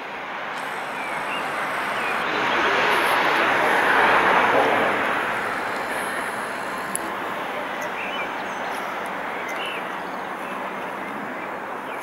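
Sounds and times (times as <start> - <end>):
steady rushing noise: 0.6 - 7.6.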